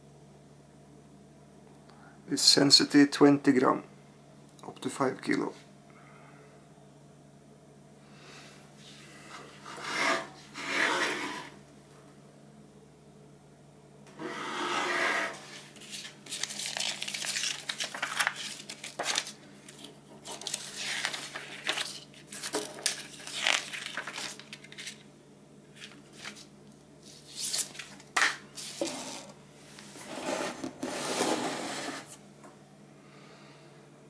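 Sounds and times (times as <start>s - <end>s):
paper pages rustling: 15.4s - 25.0s, 25.7s - 30.1s.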